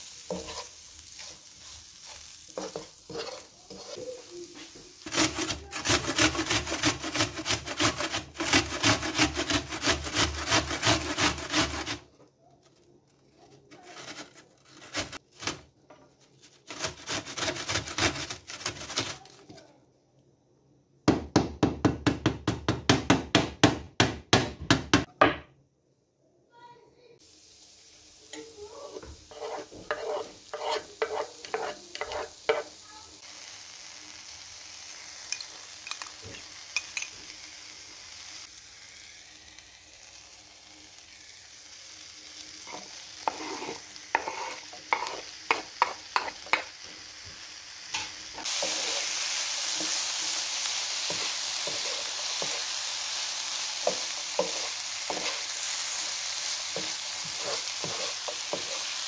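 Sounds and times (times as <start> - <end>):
food sizzling in frying pan: 0.0 - 12.0, 27.2 - 59.0
utensil scraping pan: 0.2 - 12.1, 13.5 - 15.6, 16.2 - 19.4, 28.8 - 32.7, 42.7 - 46.7, 51.0 - 52.7, 53.8 - 59.0.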